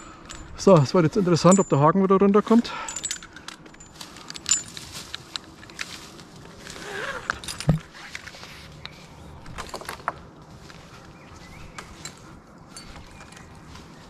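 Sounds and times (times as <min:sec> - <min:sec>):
metal climbing hardware clinking: 0:00.0 - 0:08.3, 0:09.4 - 0:10.2, 0:11.7 - 0:14.0.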